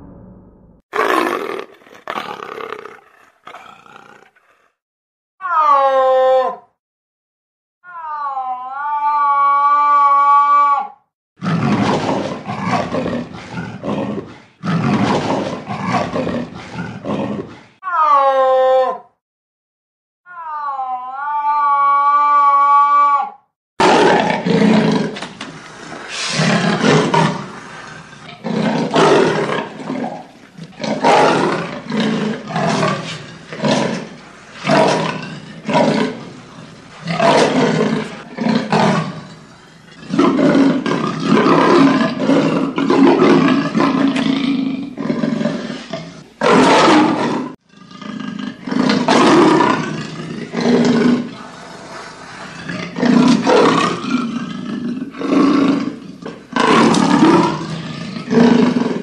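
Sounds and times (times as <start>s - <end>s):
leopard rasping roars: 1.0s - 4.8s, 11.4s - 17.8s, 23.8s - 59.0s.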